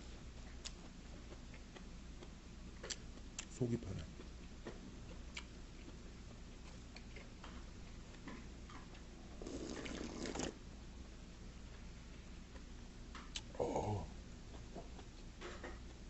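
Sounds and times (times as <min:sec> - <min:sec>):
slurping soup: 0:09.4 - 0:10.6.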